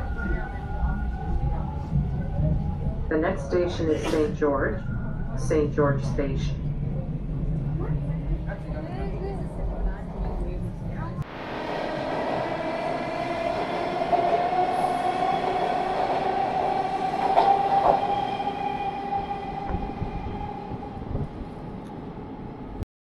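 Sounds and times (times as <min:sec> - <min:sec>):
wheels rumbling on rails: 0:06.0 - 0:22.8
subway train motor whine: 0:07.0 - 0:22.8.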